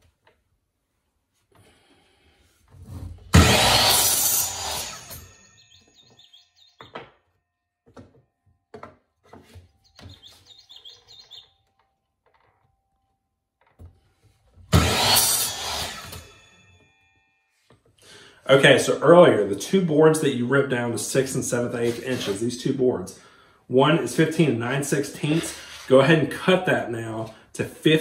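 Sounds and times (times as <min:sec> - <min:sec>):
miter saw cutting wood: 0:03.3 - 0:05.8, 0:14.7 - 0:16.5, 0:24.4 - 0:26.6.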